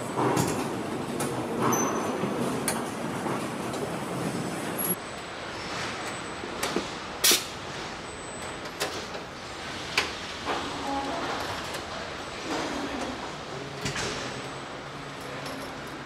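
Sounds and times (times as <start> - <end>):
machinery humming: 0.0 - 7.2
hand tool clicks and hisses: 7.2 - 7.5.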